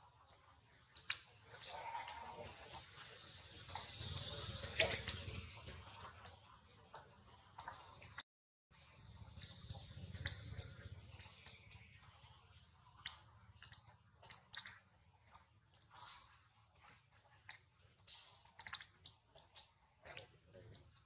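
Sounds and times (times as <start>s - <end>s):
faint sharp clicks and ticks: 0.3s - 8.2s, 9.2s - 21.0s.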